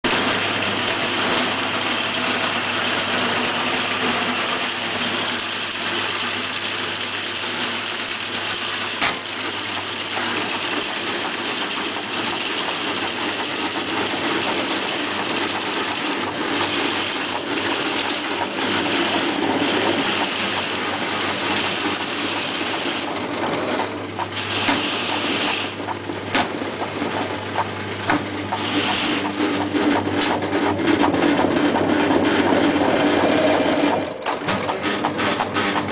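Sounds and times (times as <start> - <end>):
drain cleaning machine running: 0.0 - 35.9
low motor hum: 13.5 - 35.9
knocks and clicks: 17.3 - 35.9.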